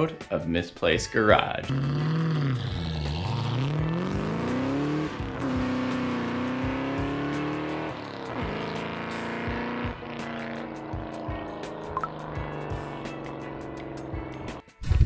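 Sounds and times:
background music: 0:00.0 - 0:15.0
motorcycle engine accelerating: 0:01.6 - 0:15.0.

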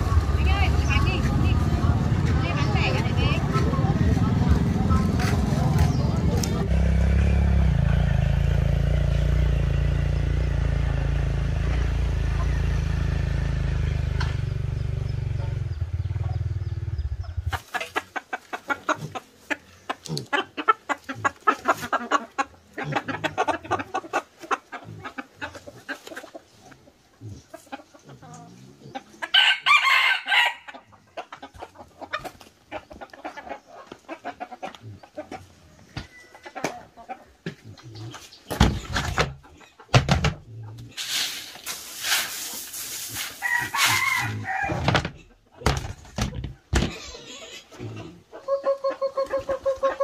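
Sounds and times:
chickens clucking: 0:00.0 - 0:07.9, 0:13.6 - 0:41.7, 0:42.3 - 0:50.0
engine running: 0:00.0 - 0:17.6
rooster crowing: 0:29.3 - 0:30.7, 0:43.4 - 0:44.9.

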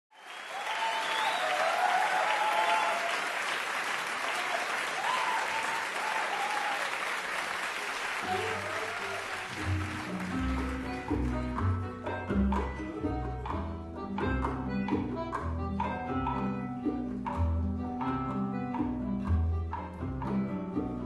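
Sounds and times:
audience applause: 0:00.1 - 0:11.7
whoops: 0:00.2 - 0:03.4, 0:04.2 - 0:07.1, 0:08.3 - 0:09.6.

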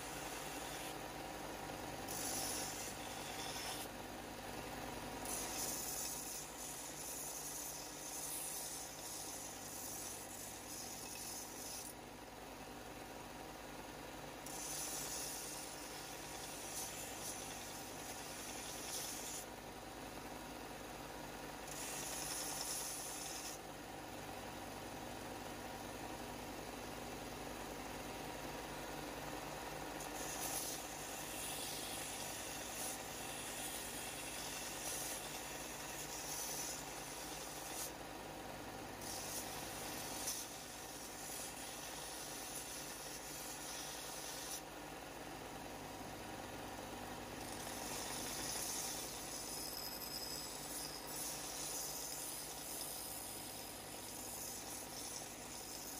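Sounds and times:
steel hissing against sanding belt: 0:02.0 - 0:03.9, 0:05.2 - 0:12.0, 0:14.4 - 0:19.5, 0:21.7 - 0:23.6, 0:30.0 - 0:38.0, 0:39.0 - 0:44.7, 0:47.4 - 0:55.9.

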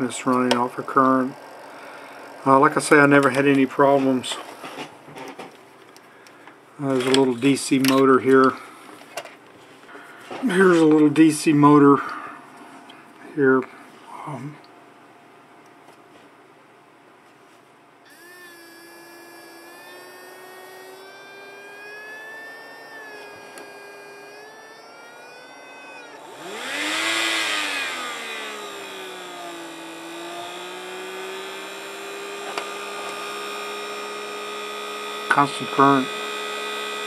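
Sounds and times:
small motor whining: 0:00.0 - 0:04.7, 0:18.1 - 0:37.0.

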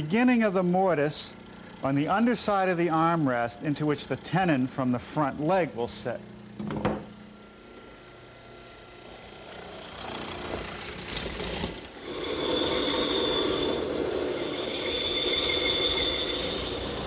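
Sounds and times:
mortiser boring into wood: 0:07.7 - 0:17.0
bandsaw cutting wood: 0:09.0 - 0:17.0.

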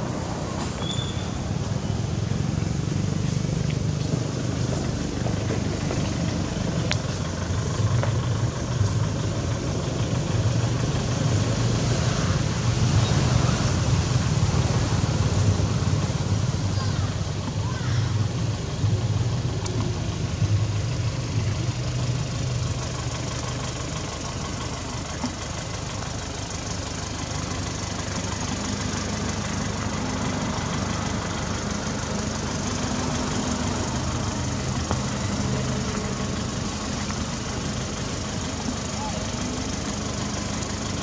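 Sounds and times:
engine humming: 0:00.0 - 0:41.0.

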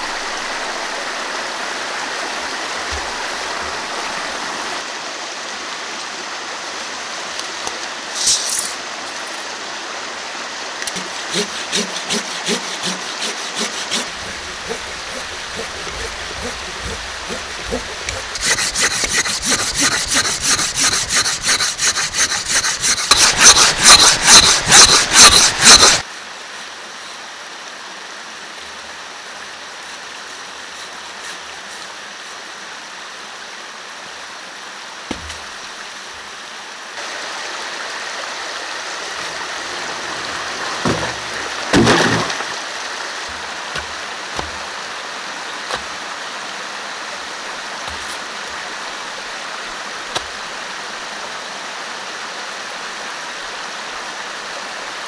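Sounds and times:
stream rushing: 0:00.0 - 0:55.0
hand saw cutting wood: 0:10.8 - 0:26.0, 0:30.3 - 0:31.9, 0:39.9 - 0:42.4, 0:43.3 - 0:44.6, 0:47.8 - 0:48.2.

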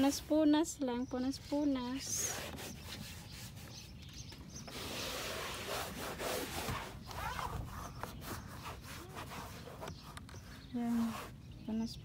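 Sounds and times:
towel rubbing on car door: 0:02.2 - 0:03.9, 0:04.7 - 0:11.4.

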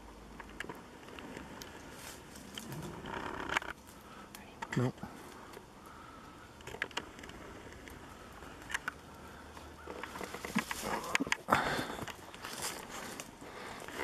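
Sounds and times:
footsteps crunching through dry leaves: 0:11.9 - 0:13.4.

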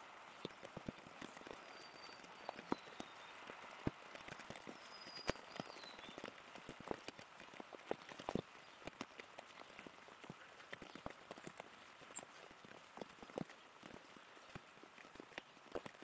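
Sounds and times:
rain falling and dripping: 0:00.0 - 0:16.0
small bird calling: 0:00.3 - 0:07.0, 0:08.0 - 0:13.3.

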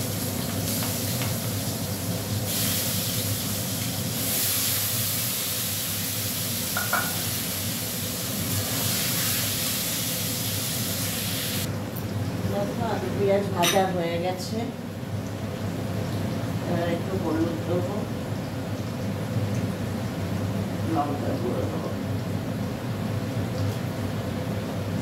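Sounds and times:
vegetables sizzling in oil: 0:00.0 - 0:13.8.

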